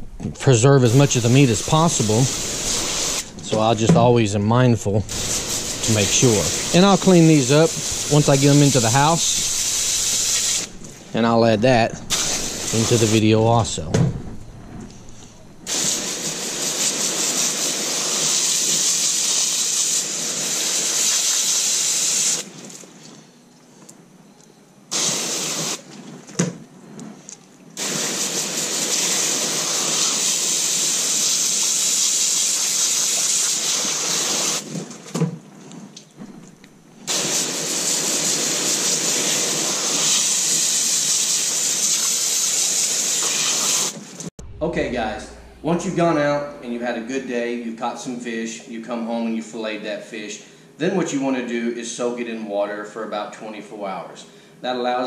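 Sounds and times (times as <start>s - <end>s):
hose spraying water onto stone: 0.8s - 3.8s, 5.1s - 10.8s, 12.1s - 13.2s, 15.7s - 22.8s, 24.9s - 25.8s, 27.8s - 34.8s, 37.1s - 44.2s.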